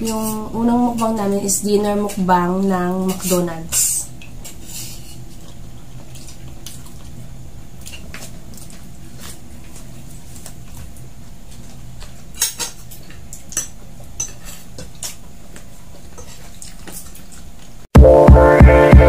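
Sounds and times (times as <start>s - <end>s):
loud music with steady beat: 18.0s - 19.0s.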